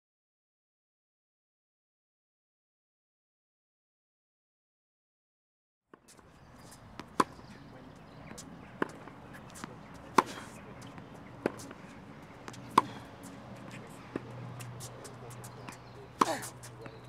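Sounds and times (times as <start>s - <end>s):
tennis ball struck by rackets: 6.0s - 17.0s.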